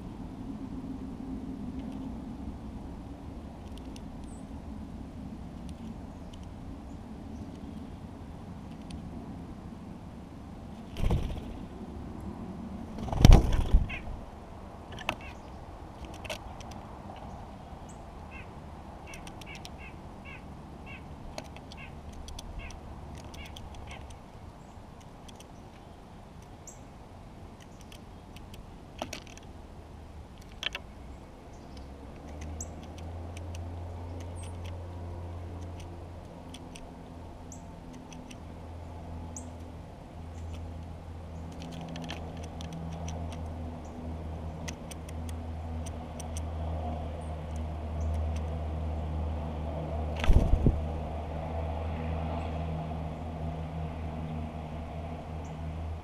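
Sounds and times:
distant engine hum: 0.0 - 56.0
bird pecking seeds on wood: 3.6 - 4.3, 14.9 - 17.3, 19.1 - 19.9, 21.2 - 24.2, 27.6 - 29.5, 30.3 - 30.8, 31.8 - 36.9, 37.9 - 38.5, 40.4 - 43.6, 44.5 - 46.5.

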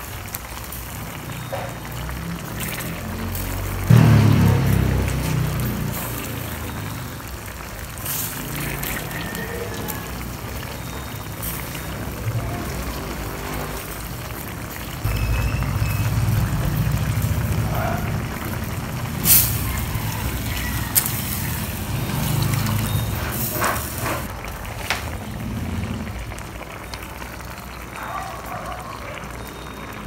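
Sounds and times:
hisses: 19.2 - 24.3.

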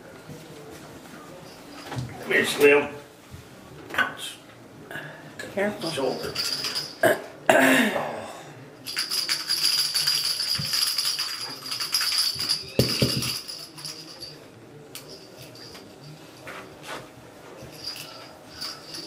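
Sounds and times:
rattle ball toy jingling: 5.8 - 7.0, 8.8 - 14.4, 17.7 - 19.0.

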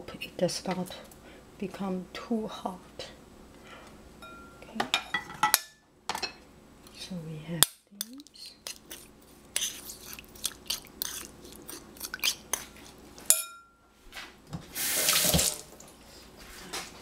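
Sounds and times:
spoon scraping ceramic bowl: 8.0 - 13.4.

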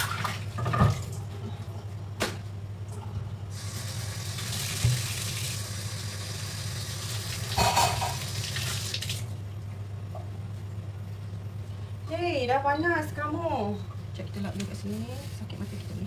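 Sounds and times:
tap running into steel sink: 4.8 - 5.2
dish clanking in sink: 7.5 - 8.3.

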